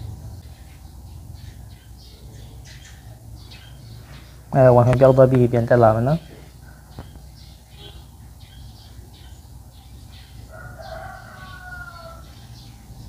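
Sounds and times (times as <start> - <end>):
steady low hum: 0.0 - 13.0
rooster crowing: 10.1 - 12.7.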